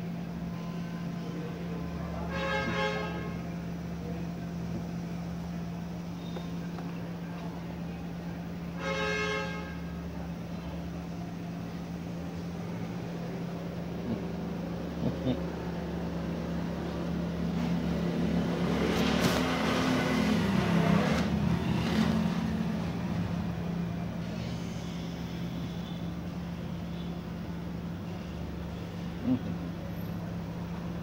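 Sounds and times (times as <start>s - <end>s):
steady low hum: 0.0s - 31.0s
vehicle passing: 15.0s - 23.8s.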